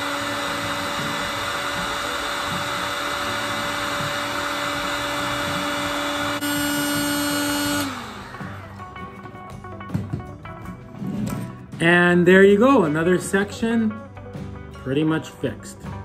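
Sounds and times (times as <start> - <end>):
heat gun fan whine: 0.0 - 9.0.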